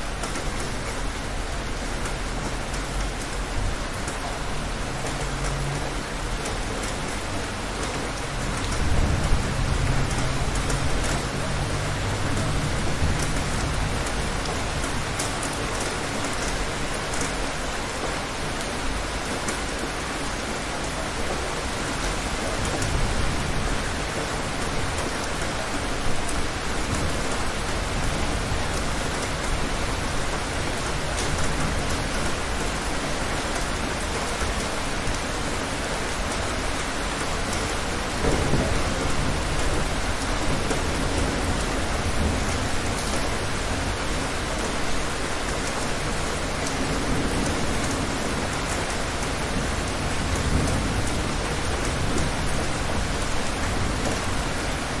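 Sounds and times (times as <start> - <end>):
heavy rain: 0.0 - 55.0
low rolling thunder: 38.0 - 44.2.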